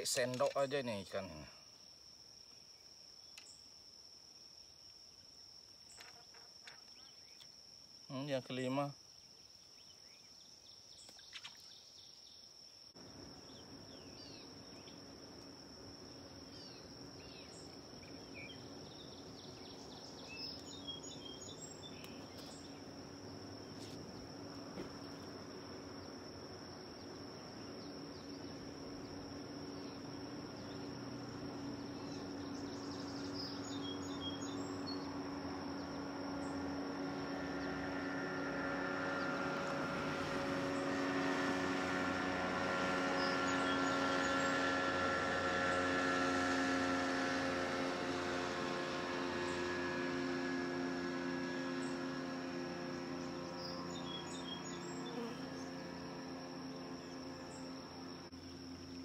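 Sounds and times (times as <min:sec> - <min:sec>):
approaching engine hum: 0:13.0 - 0:59.0
high-pitched insect drone: 0:13.0 - 0:59.0
bird chirps: 0:16.2 - 0:24.3, 0:26.9 - 0:36.7.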